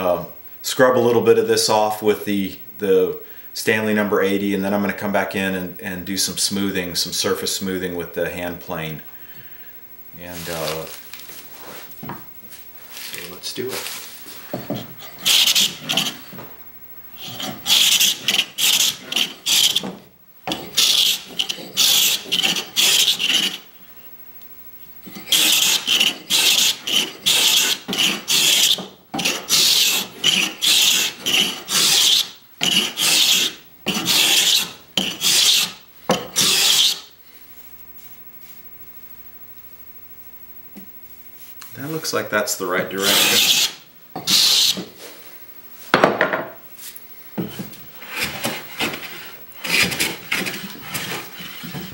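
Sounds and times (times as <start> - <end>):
cabinet scraper scraping wood: 13.7 - 16.5, 17.2 - 23.7, 25.0 - 37.1, 42.9 - 45.2, 46.0 - 51.9.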